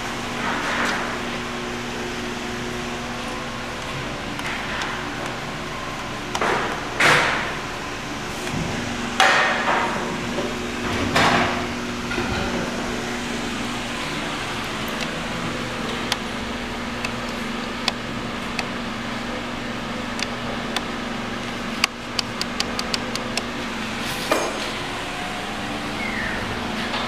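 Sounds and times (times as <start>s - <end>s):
sharp clicks: 21.8s - 23.5s.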